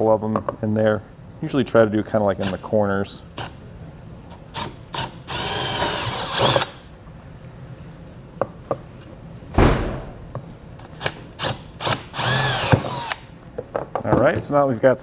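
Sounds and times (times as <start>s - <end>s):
cordless drill whining: 4.6s - 6.8s, 11.4s - 13.2s
dull thump: 9.5s - 10.2s.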